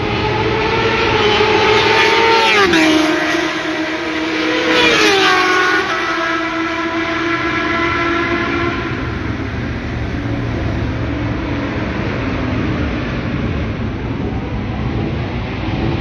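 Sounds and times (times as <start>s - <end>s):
motorcycle engine revving: 0.0s - 16.0s
steady rushing rumble: 8.4s - 16.0s.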